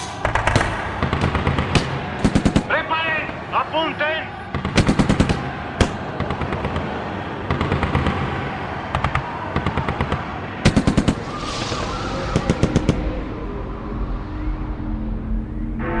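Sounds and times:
gunfire in bursts: 0:00.2 - 0:02.7, 0:04.5 - 0:11.3.

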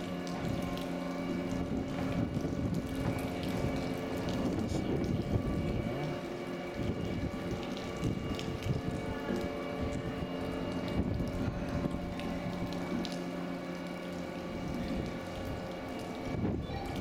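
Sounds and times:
machinery hum: 0:00.0 - 0:17.0
water wash: 0:00.0 - 0:17.0
wind noise: 0:01.5 - 0:06.1, 0:06.8 - 0:12.1, 0:16.2 - 0:17.0.

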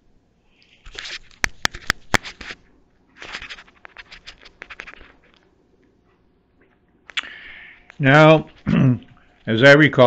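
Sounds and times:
rustling and scratching: 0:00.7 - 0:06.3.

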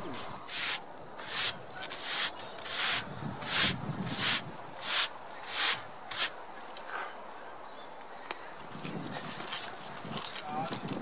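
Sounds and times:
broom sweeping wood: 0:00.4 - 0:06.4.

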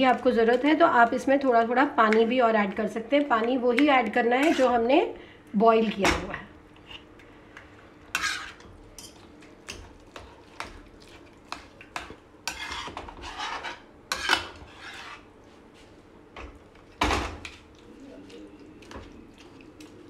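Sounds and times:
spatula scraping a metal pan: 0:04.4 - 0:04.8, 0:08.1 - 0:08.7, 0:12.0 - 0:15.3.

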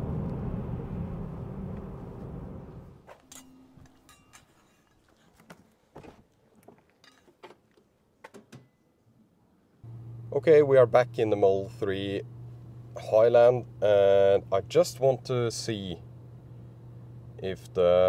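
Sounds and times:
tyre and road noise in car: 0:00.0 - 0:03.0.

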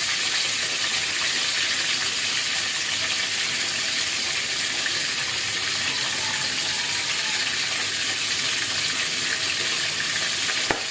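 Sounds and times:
oil sizzling with frying fish: 0:00.0 - 0:10.9.

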